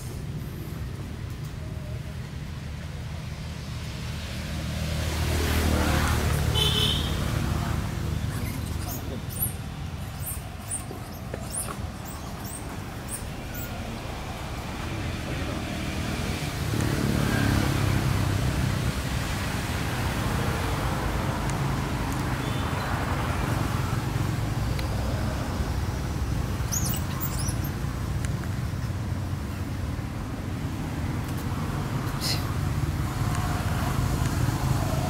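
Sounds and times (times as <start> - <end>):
high-pitched squeaks: 8.1 - 13.7.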